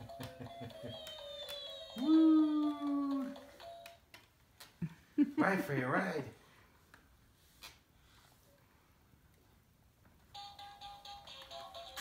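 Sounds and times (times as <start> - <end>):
toy clicking as it rocks: 0.0 - 4.3
person shouting woo: 2.0 - 3.4.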